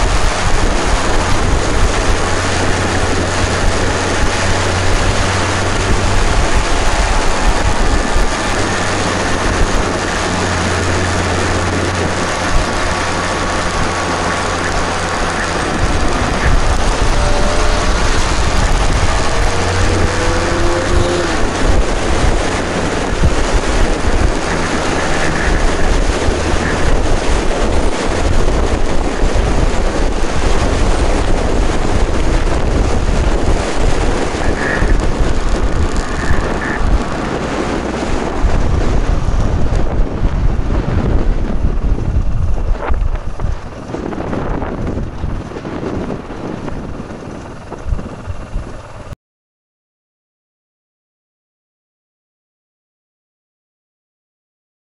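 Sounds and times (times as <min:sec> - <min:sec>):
motorcycle two-stroke engine: 0:00.0 - 0:49.1
wind rushing over microphone: 0:00.0 - 0:49.2.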